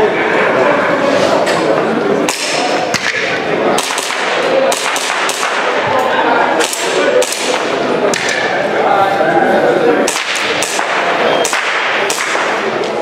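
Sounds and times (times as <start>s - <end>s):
murmur of busy hall: 0.0s - 13.0s
airsoft pistol shots: 2.3s - 5.8s, 6.6s - 8.4s, 10.1s - 12.8s.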